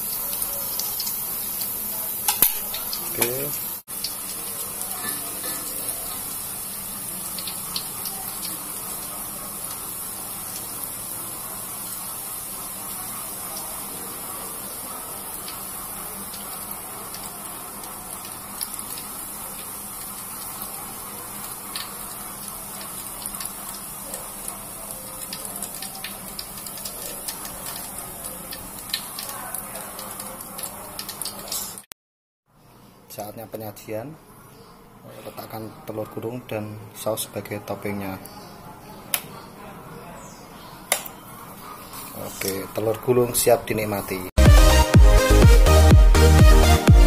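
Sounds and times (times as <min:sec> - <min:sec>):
egg sizzling in oil: 0:00.0 - 0:31.9.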